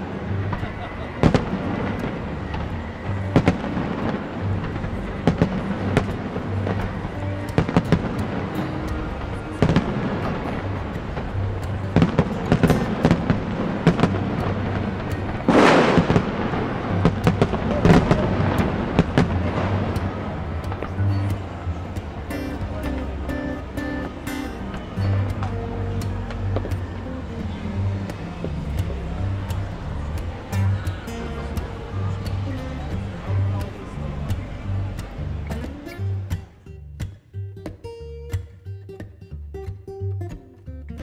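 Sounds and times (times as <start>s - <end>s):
fireworks bangs: 0.2s - 22.2s.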